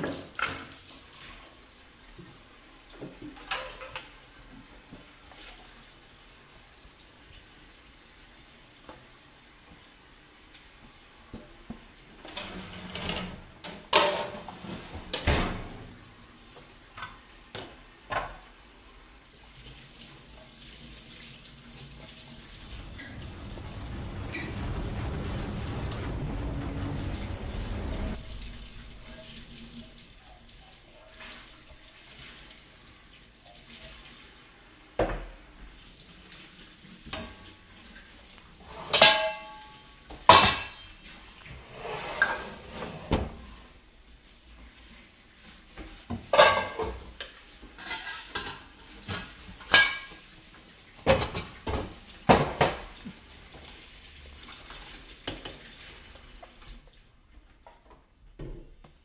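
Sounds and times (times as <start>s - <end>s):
clinks of dishes and cutlery: 0.0s - 1.0s, 3.3s - 4.2s, 38.8s - 41.1s, 46.3s - 47.1s, 47.8s - 50.2s.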